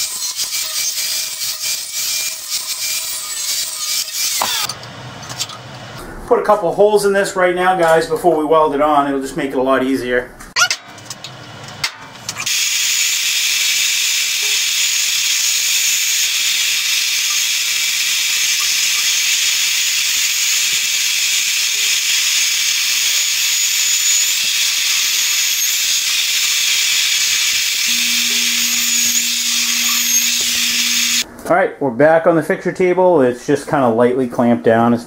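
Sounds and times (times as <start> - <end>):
drill press bit cutting steel: 0.0 - 4.7, 12.4 - 31.2.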